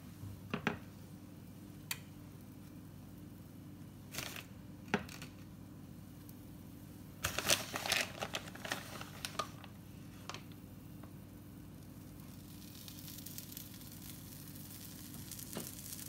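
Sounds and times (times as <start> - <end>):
plastic bag crinkling: 7.2 - 10.6, 12.2 - 16.0.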